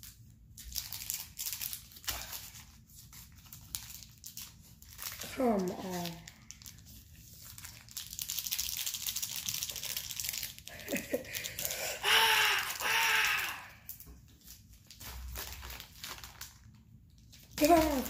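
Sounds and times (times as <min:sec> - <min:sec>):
plastic wrapper crinkling: 0:00.0 - 0:18.0
person straining vocal effort: 0:11.6 - 0:13.9.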